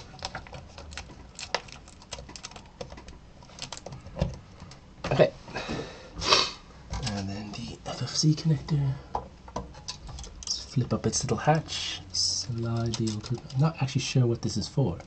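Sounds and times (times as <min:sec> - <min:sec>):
clicks and taps of handling parts: 0:09.1 - 0:10.5.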